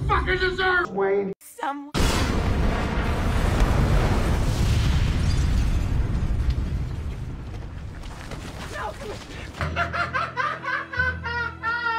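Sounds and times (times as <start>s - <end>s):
explosion rumble: 2.0s - 9.6s
debris crackling: 2.0s - 10.0s.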